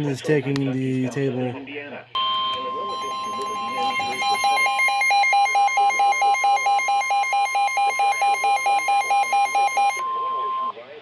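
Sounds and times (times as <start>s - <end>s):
loud beeping alarm: 2.2s - 10.7s
steady alarm tone: 2.2s - 10.7s.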